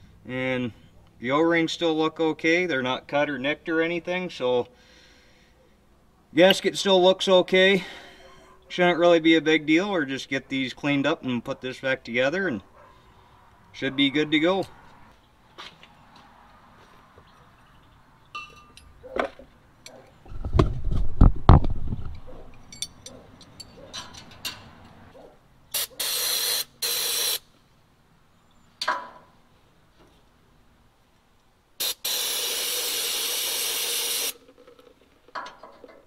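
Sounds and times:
aerosol spray bursts: 0:25.7 - 0:27.5, 0:31.8 - 0:34.4.

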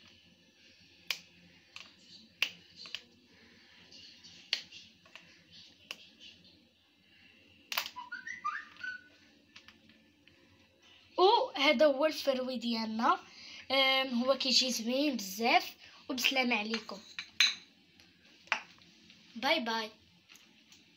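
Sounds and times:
chocolate snapping: 0:01.0 - 0:03.1, 0:07.7 - 0:08.0
whistle-like chirps: 0:07.8 - 0:09.2.

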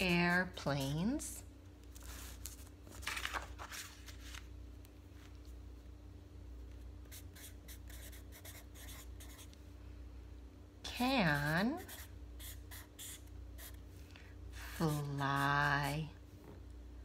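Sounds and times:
faint steady hum: 0:00.0 - 0:17.0
marker scratching on paper: 0:07.1 - 0:09.5, 0:11.2 - 0:13.8.

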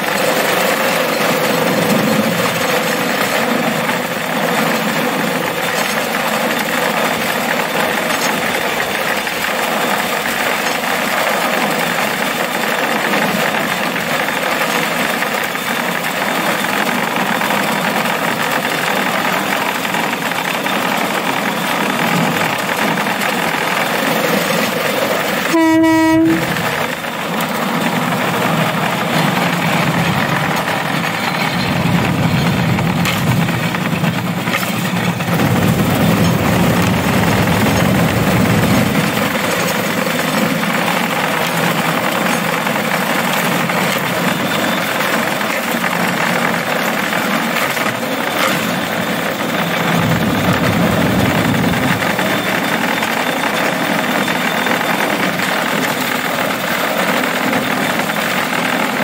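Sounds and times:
rail cart running on track: 0:00.0 - 0:59.0
short horn blast: 0:25.4 - 0:27.0.

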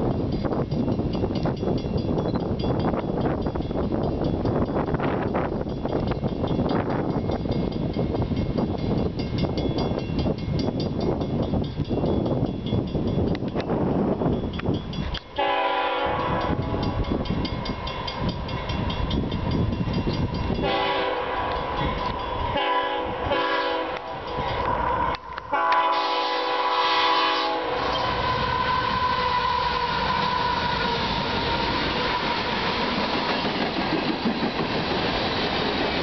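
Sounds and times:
locomotive engine and wheel rumble: 0:00.0 - 0:26.8, 0:27.6 - 0:36.0
locomotive horn blasts: 0:15.4 - 0:16.8, 0:20.6 - 0:21.8, 0:22.5 - 0:32.5.

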